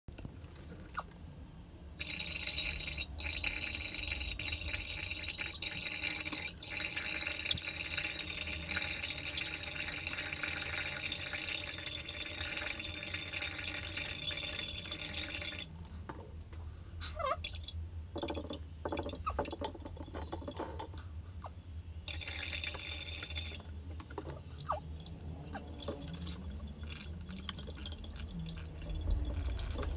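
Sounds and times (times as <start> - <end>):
water pouring into plastic bowl: 2.0 - 15.7, 22.1 - 29.9.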